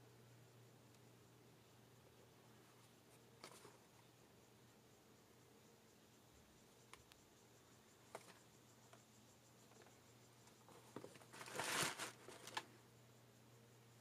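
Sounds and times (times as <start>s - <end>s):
faint low hum: 0.0s - 14.0s
tissue paper rustling: 11.3s - 12.6s.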